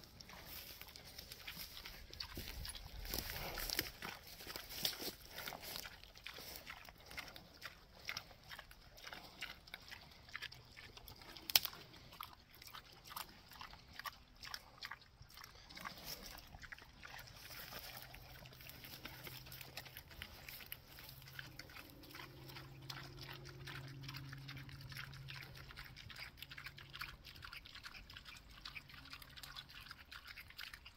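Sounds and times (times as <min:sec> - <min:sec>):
pigs crunching and chewing: 0:00.0 - 0:30.9.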